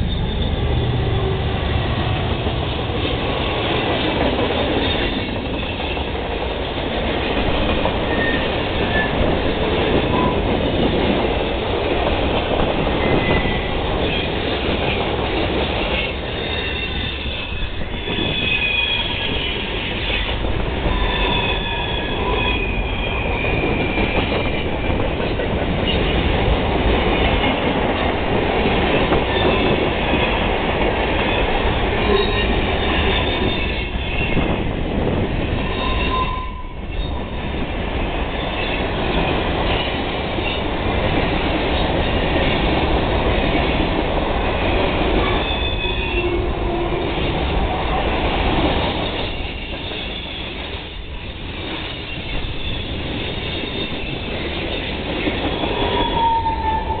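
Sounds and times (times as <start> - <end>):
wheel squeals: 0.0 - 1.0, 8.0 - 9.2, 16.0 - 24.6, 52.0 - 57.0
freight train rumbling: 0.0 - 57.0.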